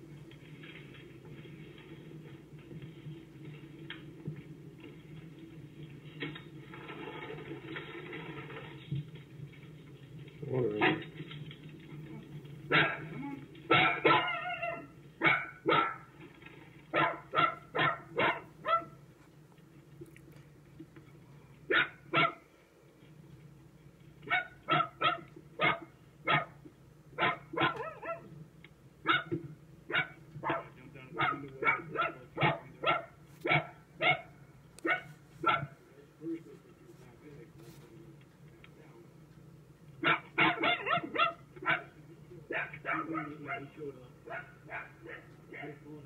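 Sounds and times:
dog barking: 0:10.8 - 0:11.1, 0:12.7 - 0:16.2, 0:16.9 - 0:19.0, 0:21.7 - 0:22.4, 0:24.2 - 0:26.6, 0:27.2 - 0:28.3, 0:29.0 - 0:35.8, 0:40.0 - 0:45.9.

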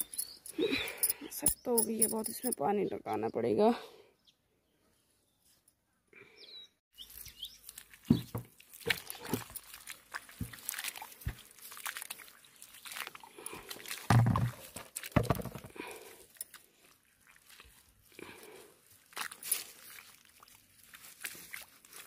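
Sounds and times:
mud slaps and crunches: 0:07.0 - 0:22.0
wet mud squelching by hand: 0:07.0 - 0:22.0.

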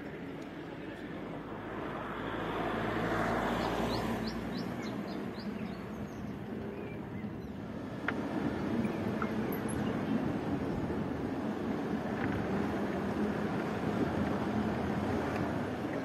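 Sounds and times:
vehicle passing: 0:01.4 - 0:06.6
bird chirping: 0:03.6 - 0:07.6.

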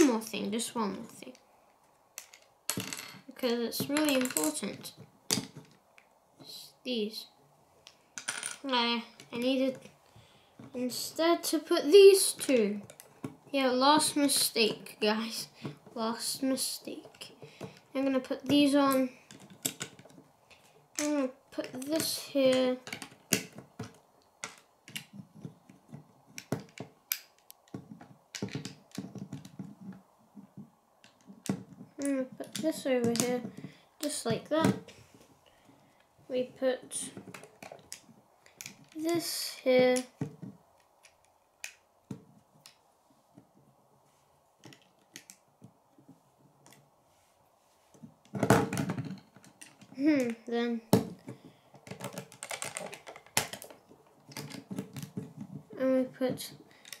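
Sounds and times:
plastic bricks clicking: 0:02.2 - 0:03.2, 0:03.8 - 0:06.0, 0:19.3 - 0:34.8, 0:37.0 - 0:39.0, 0:39.9 - 0:42.8, 0:44.6 - 0:45.8, 0:48.2 - 0:55.6, 0:56.4 - 0:57.0.

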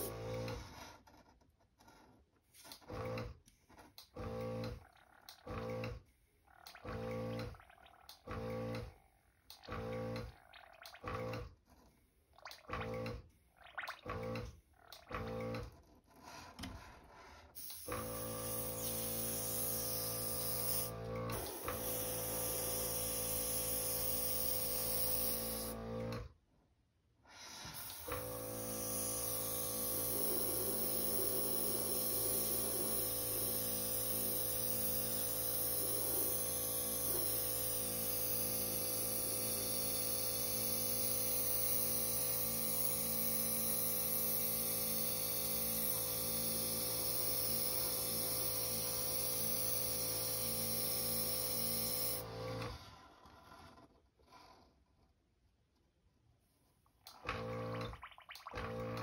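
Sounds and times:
airbrush compressor humming: 0:00.0 - 0:00.7, 0:17.6 - 0:26.2, 0:27.7 - 0:52.3
air hissing through airbrush: 0:17.6 - 0:25.8, 0:27.4 - 0:46.0.

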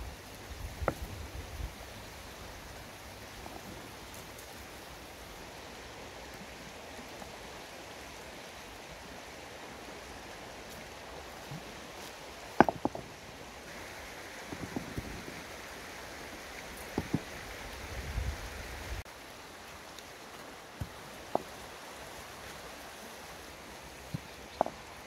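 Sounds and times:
outdoor background hiss: 0:00.0 - 0:25.0
sharp knocks: 0:12.6 - 0:13.0.

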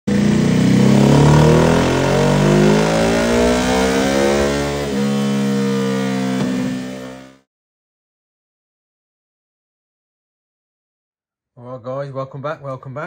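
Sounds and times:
motorcycle engine revving on a dyno: 0:00.1 - 0:07.5.

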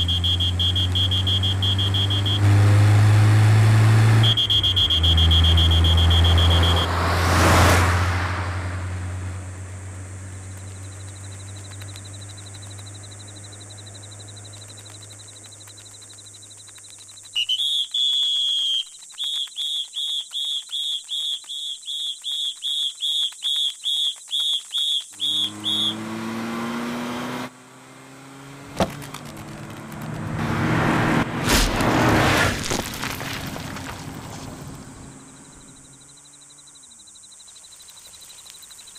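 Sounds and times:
short high-pitched beeps: 0:00.0 - 0:02.4, 0:04.2 - 0:06.9
car engine idling: 0:00.0 - 0:02.5, 0:04.2 - 0:07.0, 0:08.8 - 0:17.5, 0:33.0 - 0:36.8
tyres spinning on asphalt: 0:00.0 - 0:37.0.

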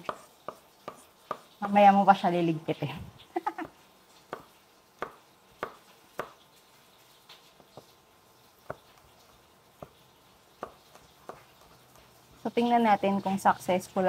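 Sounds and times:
knife chopping on wooden board: 0:00.0 - 0:01.8, 0:03.6 - 0:06.4, 0:08.6 - 0:10.0, 0:10.6 - 0:12.1.

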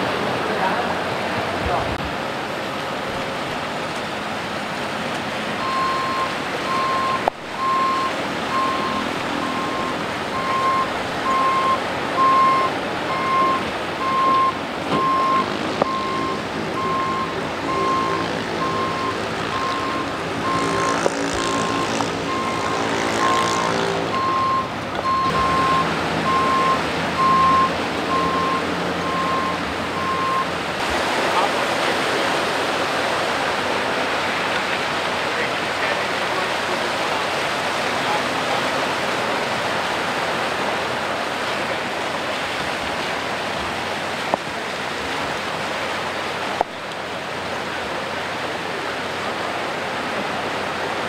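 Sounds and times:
rushing floodwater: 0:00.0 - 0:51.0
truck engine running: 0:05.4 - 0:30.8
truck reversing alarm beeping: 0:05.6 - 0:30.6.

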